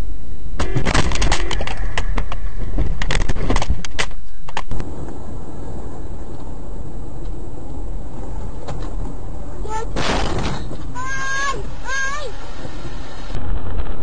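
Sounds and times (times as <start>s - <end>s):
car interior road noise: 4.7s - 14.0s.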